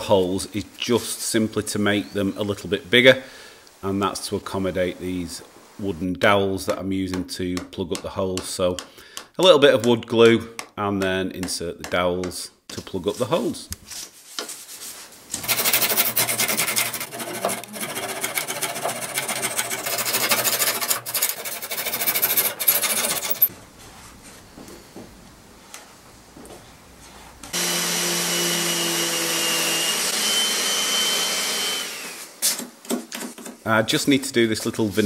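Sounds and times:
pull saw cutting wood: 15.4 - 23.5, 27.5 - 32.6.

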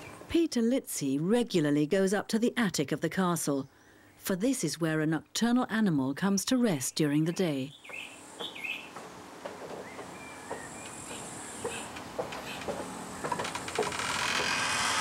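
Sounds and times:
light knocks: 8.4 - 14.0.

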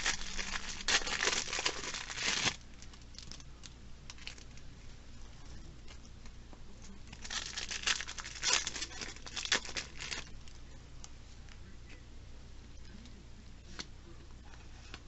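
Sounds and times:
foil wrapper tearing and crinkling: 0.0 - 3.4, 4.1 - 4.6, 7.1 - 10.3
cards rustling: 0.0 - 4.7, 7.1 - 11.6.

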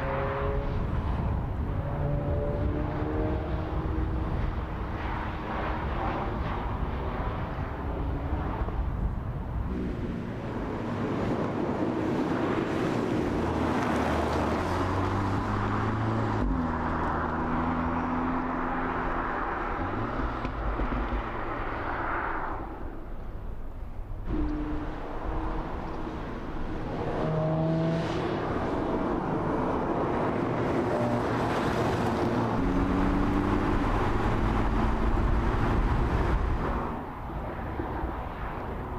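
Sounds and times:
road noise: 0.0 - 38.9.

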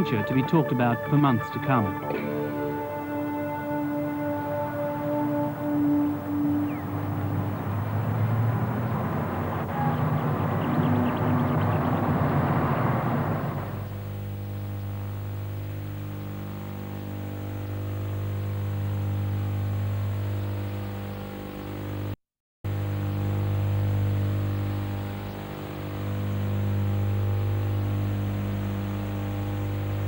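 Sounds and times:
electrical hum: 0.0 - 22.1, 22.7 - 30.0.

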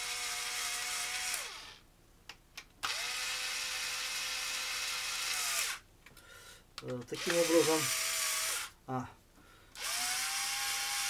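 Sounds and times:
power screwdriver whine: 2.8 - 5.8, 7.2 - 8.7, 9.8 - 11.0.

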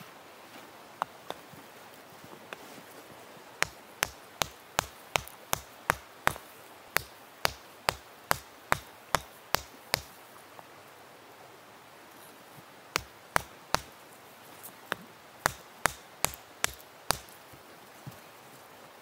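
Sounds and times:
hammer striking hot iron: 3.6 - 6.4, 7.0 - 10.1, 13.0 - 13.9, 15.4 - 17.3.

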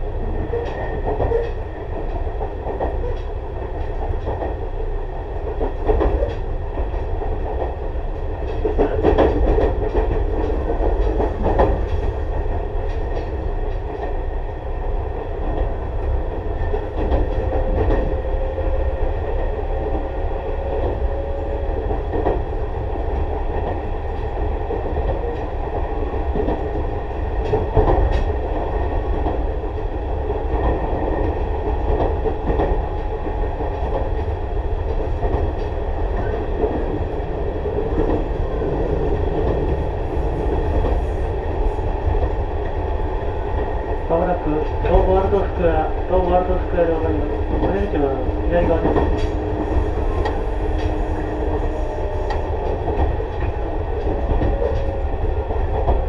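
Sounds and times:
electric train rolling rumble: 0.0 - 56.0
train wheels knocking: 19.4 - 56.0.

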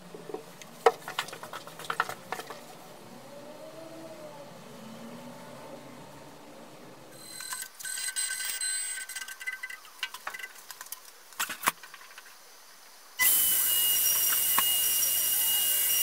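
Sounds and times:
machine whining: 13.2 - 16.0
router spindle hissing and whining: 13.2 - 16.0.

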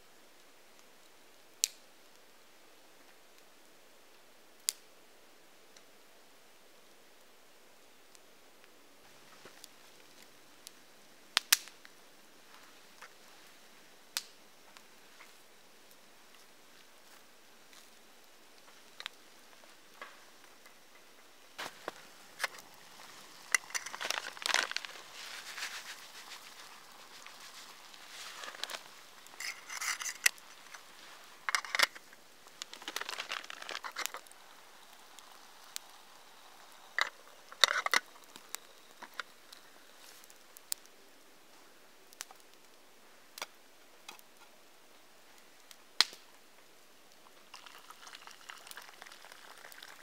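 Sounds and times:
campfire crackling and popping: 0.2 - 50.0.

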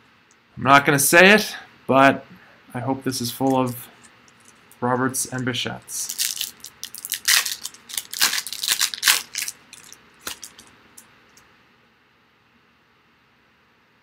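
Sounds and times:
foil wrapper tearing and crackling: 6.1 - 10.7.

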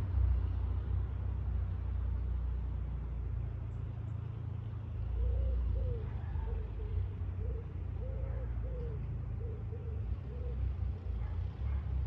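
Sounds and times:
car engine and exhaust rumble: 0.0 - 5.8.

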